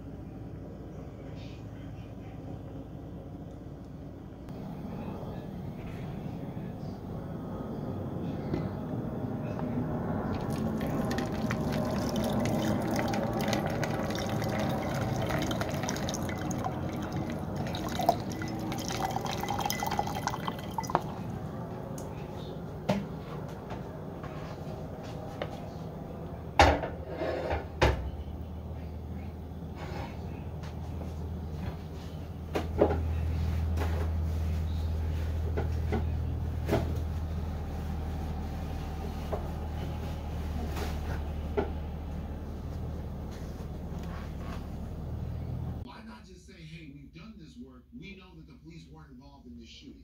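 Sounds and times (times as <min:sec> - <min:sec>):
low hum: 0:00.0 - 0:26.6
liquid pouring into glass jar: 0:10.3 - 0:21.3.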